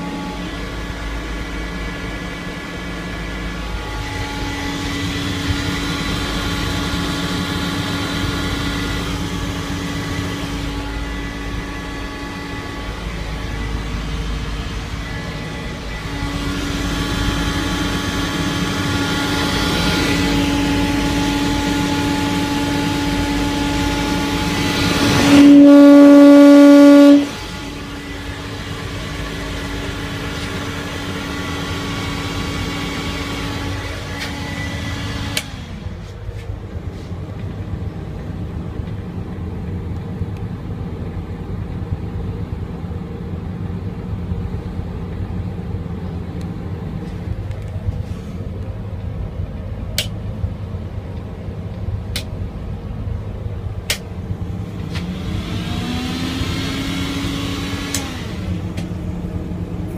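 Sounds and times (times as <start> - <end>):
loud horn-like tone: 0.0 - 29.2
exhaust fan humming: 0.0 - 59.9
low steady rumble: 0.0 - 59.9.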